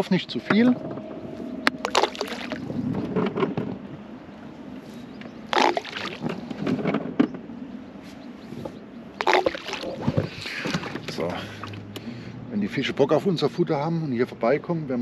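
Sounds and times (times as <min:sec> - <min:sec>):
bait plopping into water: 0:01.8 - 0:02.6, 0:05.5 - 0:06.3, 0:09.2 - 0:11.0.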